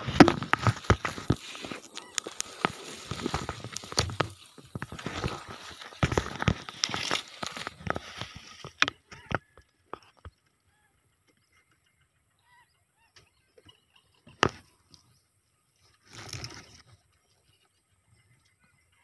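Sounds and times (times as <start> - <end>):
grass rustling against microphone: 0.0 - 10.4, 13.7 - 18.3
sharp clicks and knocks: 0.0 - 10.4.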